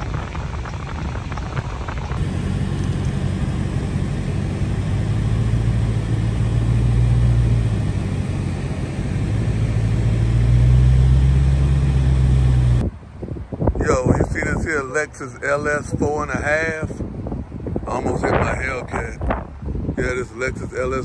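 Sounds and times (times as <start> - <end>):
car engine running deep: 0.0 - 13.1.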